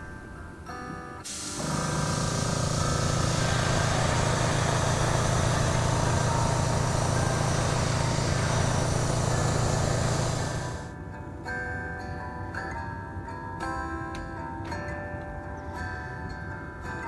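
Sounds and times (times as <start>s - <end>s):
air compressor hum: 1.2s - 10.9s
airbrush spraying hiss: 1.2s - 10.9s.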